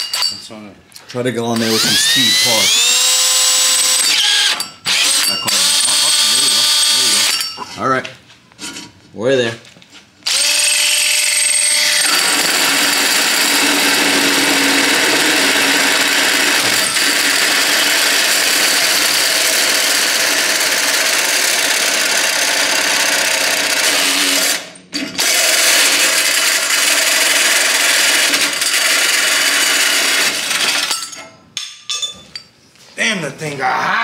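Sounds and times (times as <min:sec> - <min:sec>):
drill hole saw cutting metal: 0:01.6 - 0:07.5, 0:10.2 - 0:31.1.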